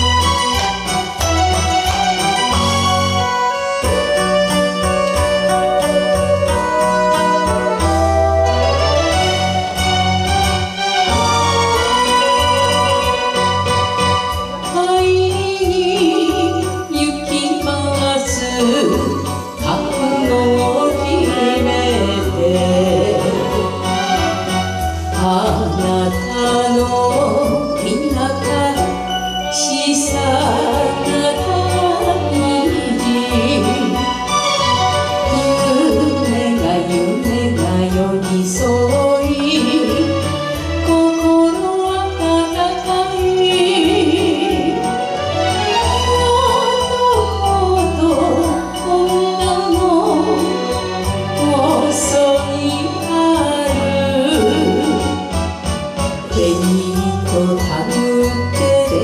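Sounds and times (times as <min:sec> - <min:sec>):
recorded backing track with bass: 0:00.0 - 0:59.0
woman singing into a microphone: 0:14.2 - 0:24.2, 0:25.0 - 0:34.3, 0:35.1 - 0:55.4, 0:56.2 - 0:59.0.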